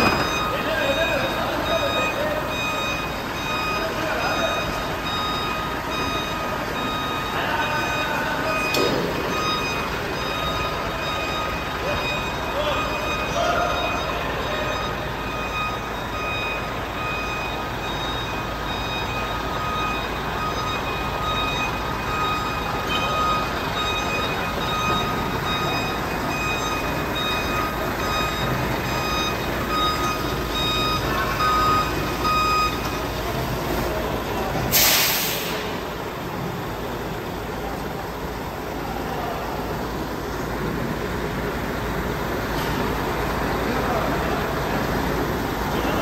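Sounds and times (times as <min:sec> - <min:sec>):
reverse alarm beeping: 0:00.0 - 0:40.8
diesel truck engine running: 0:00.0 - 0:46.0
hissing air burst: 0:34.7 - 0:35.7.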